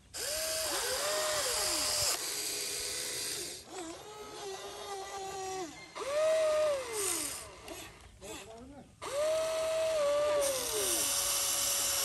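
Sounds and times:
electric motors whining: 0.0s - 12.0s.

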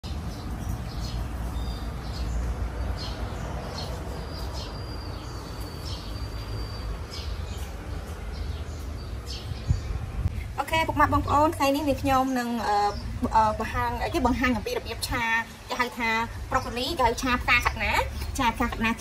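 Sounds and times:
birds chirping: 0.0s - 19.0s
steady low rumble: 7.7s - 15.2s.

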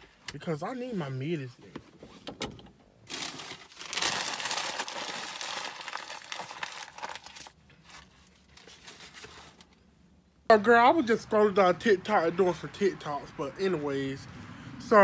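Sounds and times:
crinkling rustling: 3.0s - 9.9s.

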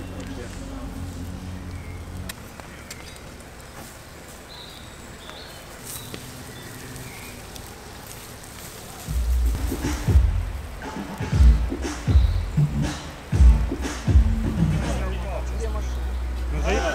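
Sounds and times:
loud low rumble: 0.0s - 2.6s, 9.1s - 16.7s
wood fire crackling and popping: 0.0s - 15.4s.

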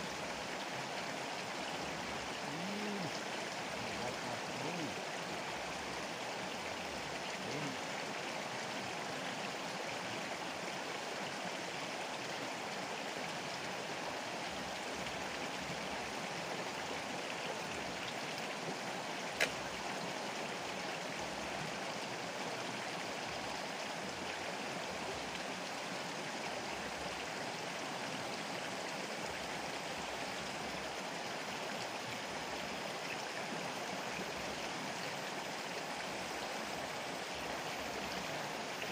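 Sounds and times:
river rushing: 0.0s - 38.9s
sharp click: 19.4s - 19.6s.

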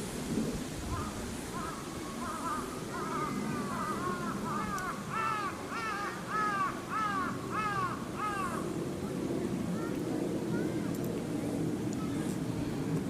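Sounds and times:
crow cawing: 0.9s - 8.6s.

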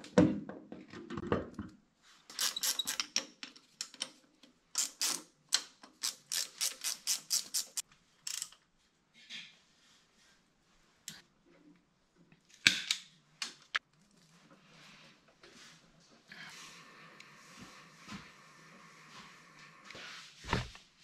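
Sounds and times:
ratchet wrench clicking: 2.3s - 3.1s, 4.8s - 5.2s, 6.0s - 8.6s.

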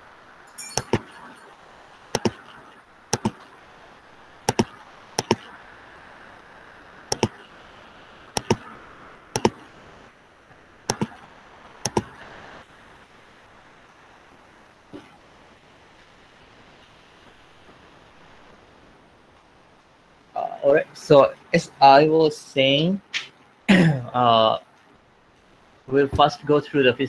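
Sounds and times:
faint steady hiss: 0.0s - 27.0s
computer mouse double clicks: 4.5s - 5.4s, 7.1s - 7.4s, 8.4s - 8.6s, 9.4s - 9.6s, 10.9s - 11.2s, 11.9s - 12.1s.

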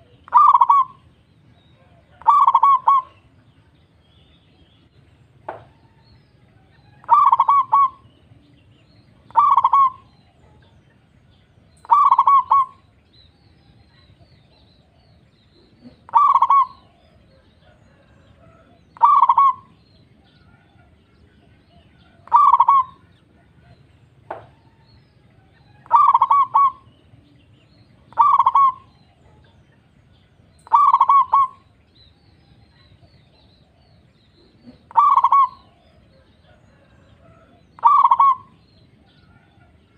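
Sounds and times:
dove cooing: 0.0s - 1.1s, 1.7s - 3.4s, 6.6s - 8.4s, 9.2s - 10.8s, 11.8s - 12.9s, 13.9s - 29.8s, 30.4s - 31.8s, 32.7s - 39.9s
low steady hum: 0.0s - 39.9s.

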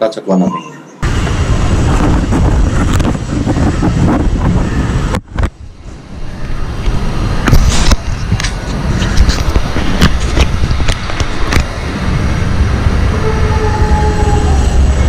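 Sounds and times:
camera handling rumble: 7.4s - 11.8s.

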